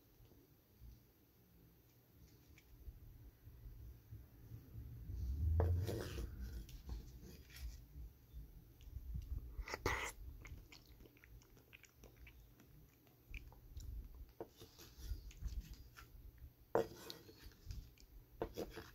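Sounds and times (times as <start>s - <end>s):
wet mouth clicks chewing: 9.2s - 14.4s.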